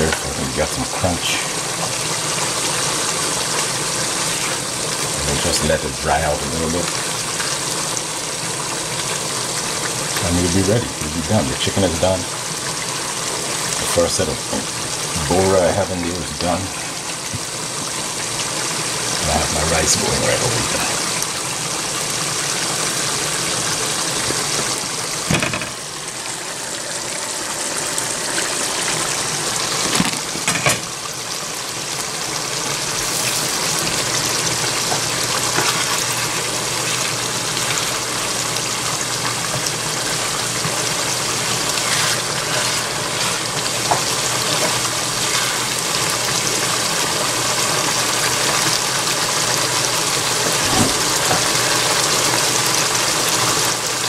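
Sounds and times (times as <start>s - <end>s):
sauce bubbling and sizzling: 0.0s - 54.0s
spatula scraping pan: 41.4s - 45.8s.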